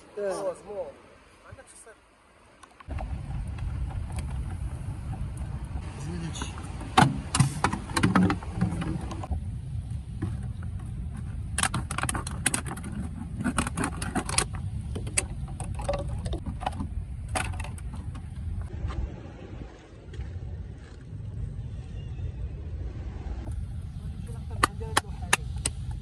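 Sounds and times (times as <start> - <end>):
steady low rumble: 2.9 - 13.4, 14.5 - 26.0.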